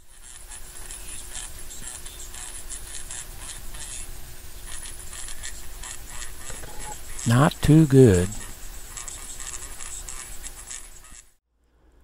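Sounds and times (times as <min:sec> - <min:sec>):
radio hiss and crackling static: 0:00.0 - 0:11.4
faint steady tone: 0:06.5 - 0:08.5.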